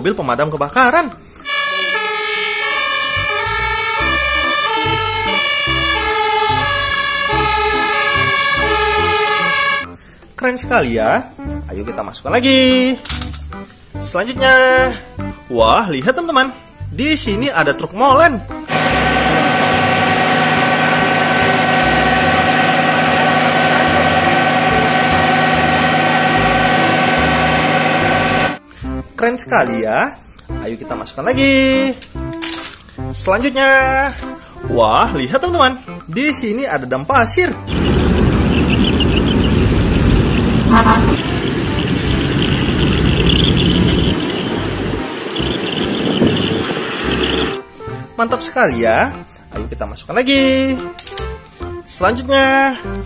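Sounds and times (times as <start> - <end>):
fire engine two-tone siren: 1.4 - 10.0, 18.7 - 28.6, 37.7 - 47.6
concrete pouring down chute: 18.7 - 28.6
steady whine: 18.7 - 28.6, 37.7 - 47.6.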